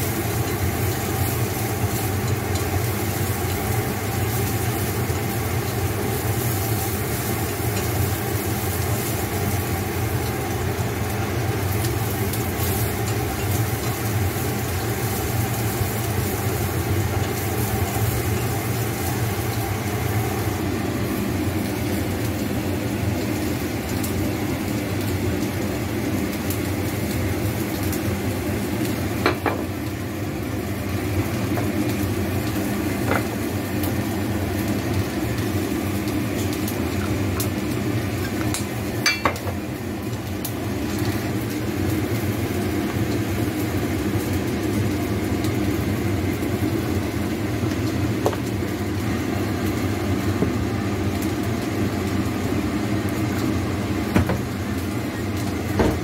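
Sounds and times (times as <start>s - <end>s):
low kitchen hum: 0.0s - 56.0s.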